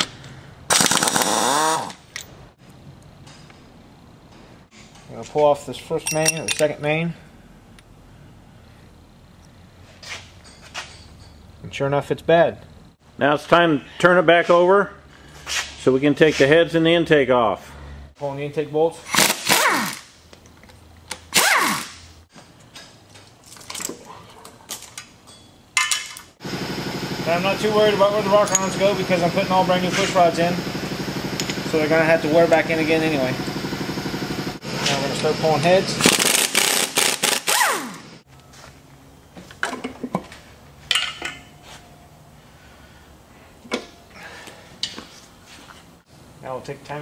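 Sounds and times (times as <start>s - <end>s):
air ratchet whining: 0.7s - 2.0s, 21.2s - 22.0s, 36.0s - 38.0s
pry bar clinking on metal: 6.0s - 6.8s.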